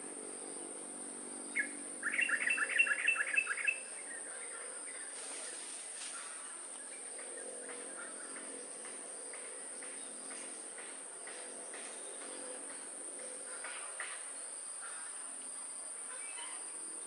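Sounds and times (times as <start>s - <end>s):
insects buzzing: 0.0s - 17.0s
bird chirps: 1.5s - 5.7s.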